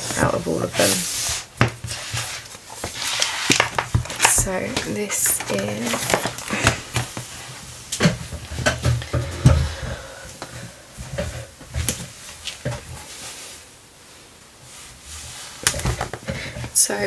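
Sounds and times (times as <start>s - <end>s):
books knocking and rustling: 0.0s - 13.2s, 15.5s - 16.8s.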